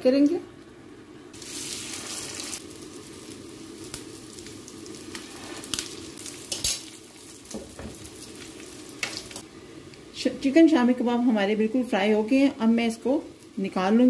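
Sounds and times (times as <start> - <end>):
patties sizzling in oil: 1.3 - 9.5, 12.0 - 14.0.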